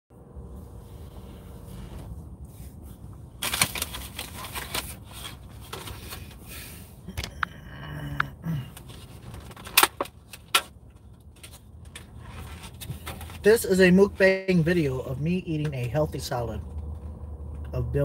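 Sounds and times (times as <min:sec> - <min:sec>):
food packaging crackling: 0:03.4 - 0:06.2.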